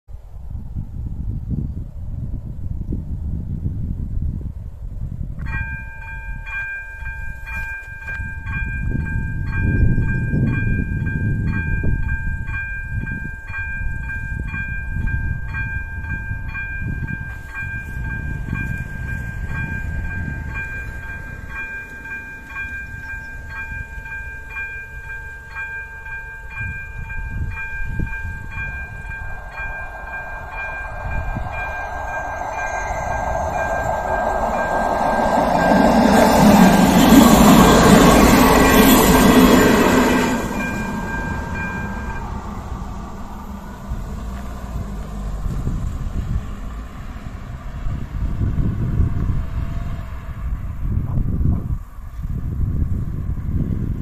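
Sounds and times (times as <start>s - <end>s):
rumble of oncoming train: 0.1s - 54.0s
level crossing bell ringing: 5.5s - 42.8s.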